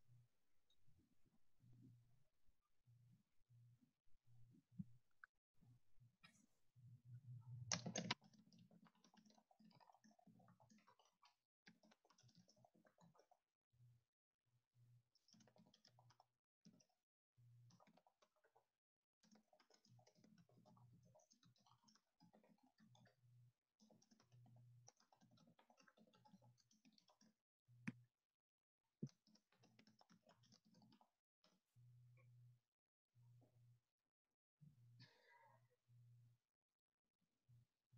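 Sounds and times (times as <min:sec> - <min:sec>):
sharp clicks: 0:07.7 - 0:08.2
computer keyboard typing: 0:07.7 - 0:13.3.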